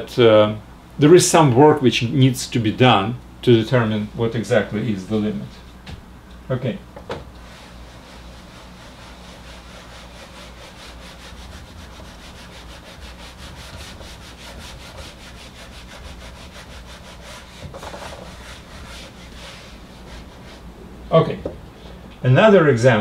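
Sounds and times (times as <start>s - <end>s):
eraser wiping a whiteboard: 7.4s - 20.7s.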